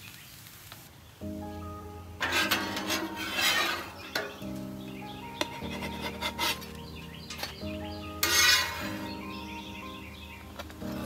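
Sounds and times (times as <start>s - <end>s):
background music: 1.2s - 11.0s
metal spatula scraping griddle: 2.2s - 4.6s, 5.4s - 9.5s
spatula tapping steel: 2.2s - 4.6s, 8.2s - 9.0s.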